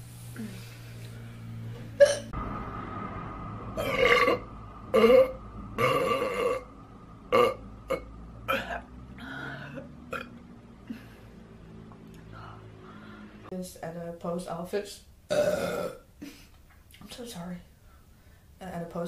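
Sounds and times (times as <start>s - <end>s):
woman belching: 2.0s - 2.3s, 3.8s - 6.7s, 7.3s - 8.9s, 9.7s - 10.3s, 15.3s - 16.1s.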